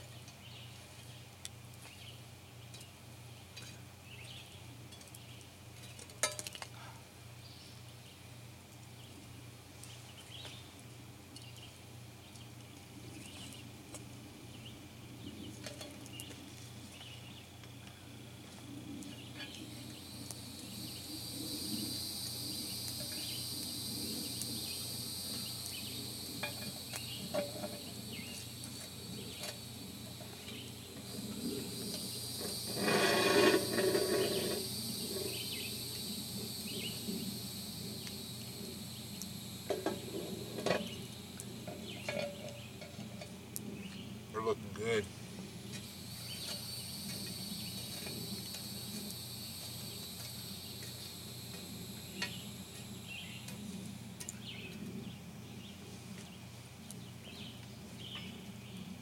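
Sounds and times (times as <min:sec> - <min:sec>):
insects buzzing: 0:13.0 - 0:59.0.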